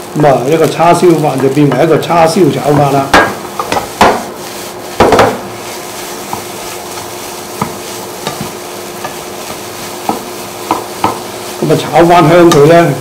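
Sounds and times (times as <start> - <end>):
food sizzling in a pan: 0.0 - 13.0
spatula scraping and knocking pan: 2.6 - 12.8.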